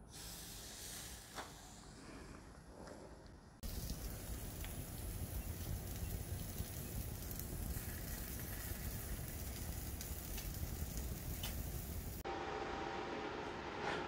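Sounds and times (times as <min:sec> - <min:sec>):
faint crackles: 0:01.2 - 0:12.2
meat sizzling on a grill: 0:03.6 - 0:12.2.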